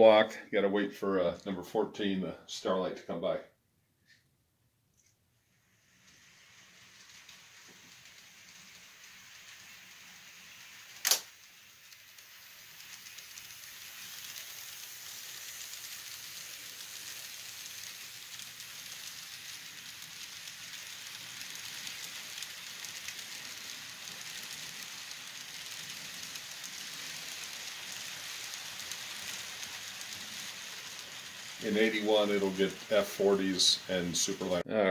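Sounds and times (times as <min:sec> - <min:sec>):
model train rolling on track: 0:05.4 - 0:34.6
sharp click: 0:11.0 - 0:11.3.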